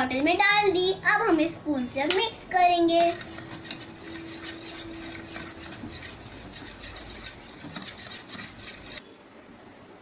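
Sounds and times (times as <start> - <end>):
metal spoon scraping steel bowl: 3.0 - 9.0.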